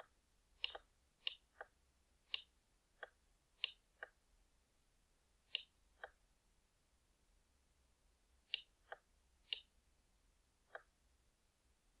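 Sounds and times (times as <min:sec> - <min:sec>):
computer mouse button clicking: 0:00.0 - 0:01.7, 0:02.3 - 0:04.2.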